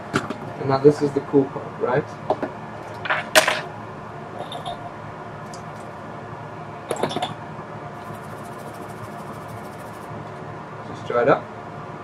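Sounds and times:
faint low hum: 3.8s - 12.0s.

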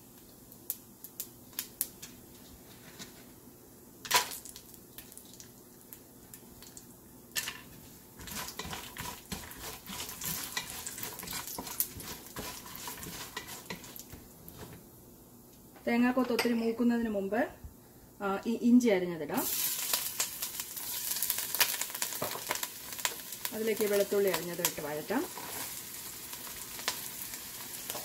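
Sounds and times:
food sizzling in oil: 6.3s - 14.4s, 19.3s - 28.0s
spatula scraping a pot: 8.2s - 14.0s.

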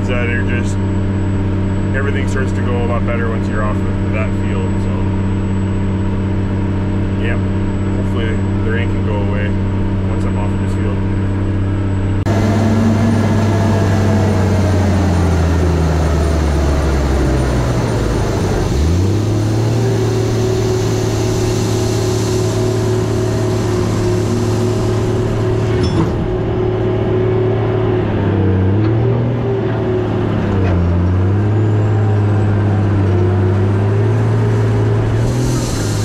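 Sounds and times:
tractor diesel engine: 0.0s - 36.0s
seed drill working the ground: 12.3s - 27.9s, 28.8s - 36.0s.

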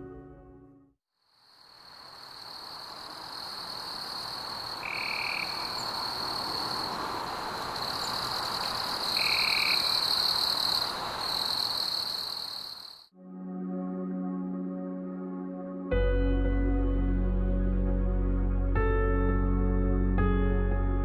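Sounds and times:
background noise: 1.2s - 13.1s
frog and insect trill: 1.2s - 13.1s
short frog calls: 1.2s - 13.1s.

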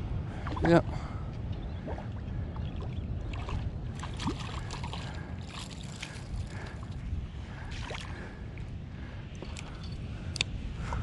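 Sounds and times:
wind rumble on microphone: 0.0s - 11.0s
water lapping at shoreline: 0.3s - 11.0s
small splashes and crackles: 2.8s - 7.0s.

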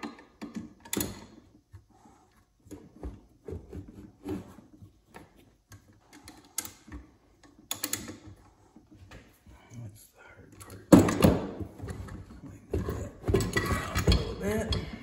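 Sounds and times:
metal clinks and knocks: 10.8s - 15.0s.

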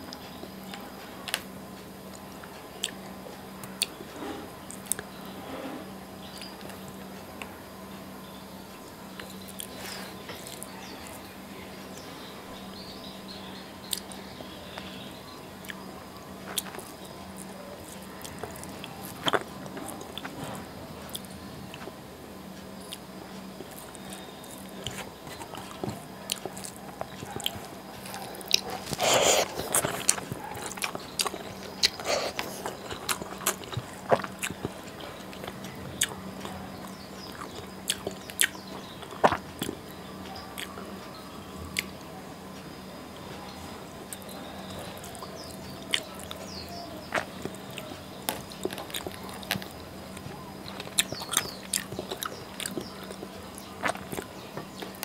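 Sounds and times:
faint steady hum: 0.0s - 55.0s
chewing and mouth clicks: 2.1s - 4.0s, 13.8s - 14.9s, 16.4s - 22.0s, 22.8s - 40.8s, 44.0s - 55.0s.

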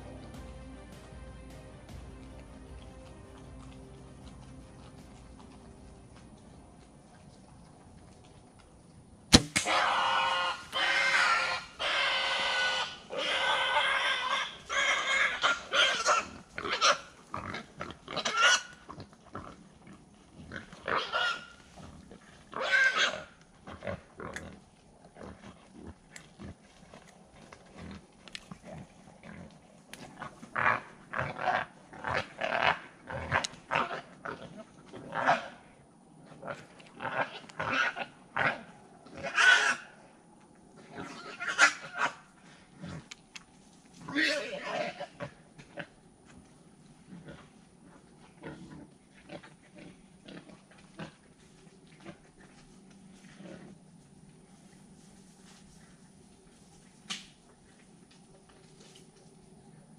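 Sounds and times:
hogs grunting: 1.9s - 7.8s, 9.6s - 40.0s
sharp snap: 9.3s - 9.8s
hogs squealing: 9.6s - 17.6s, 18.2s - 18.8s, 20.8s - 21.6s, 22.5s - 23.4s, 39.2s - 39.9s, 41.0s - 42.2s.

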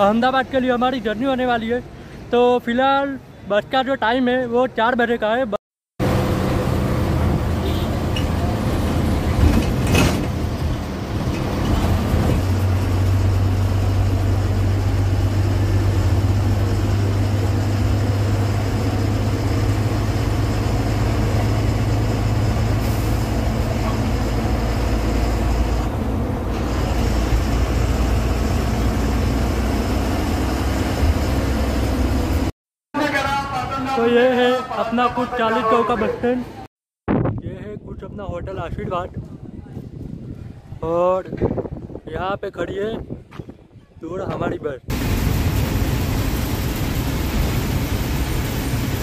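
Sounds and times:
bus engine running: 6.0s - 34.0s, 44.9s - 49.0s
road and cabin noise: 6.0s - 36.7s, 43.0s - 49.0s.

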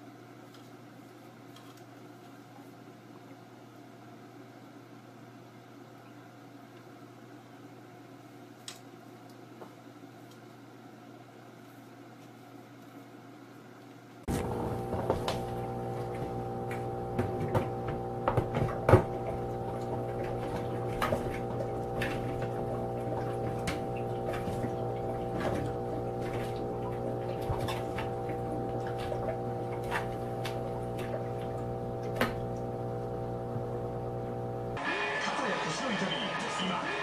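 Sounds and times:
humidifier fan hum: 0.0s - 37.0s.

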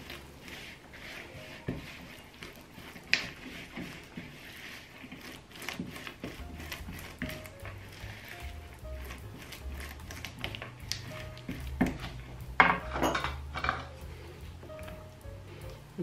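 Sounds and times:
spatula scraping a glass bowl: 0.0s - 13.9s.

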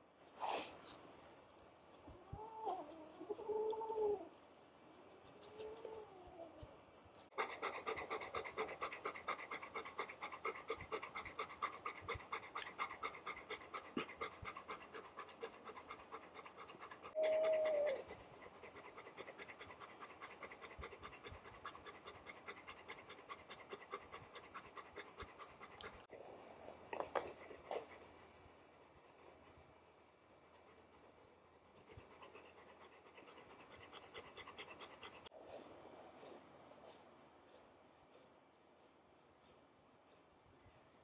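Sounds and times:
dog panting fast: 7.1s - 17.2s, 18.0s - 26.1s, 30.4s - 35.6s.

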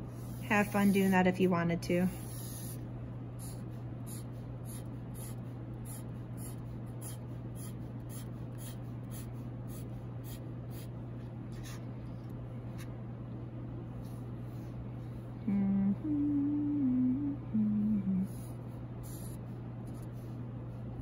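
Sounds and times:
marker drawing strokes on paper: 0.0s - 1.3s, 2.0s - 2.8s, 3.4s - 10.9s, 11.5s - 11.8s, 18.3s - 20.4s
steady low hum: 0.0s - 21.0s.

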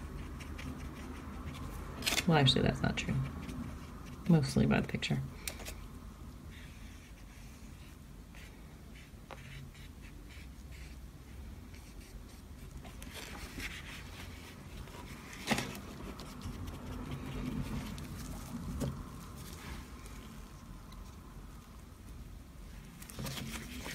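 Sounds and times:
painting tool scratching paper: 0.0s - 2.2s, 6.5s - 18.6s.

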